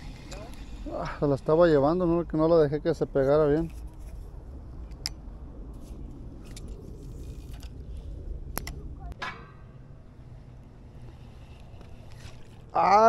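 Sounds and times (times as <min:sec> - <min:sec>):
low rumble: 0:00.0 - 0:13.0.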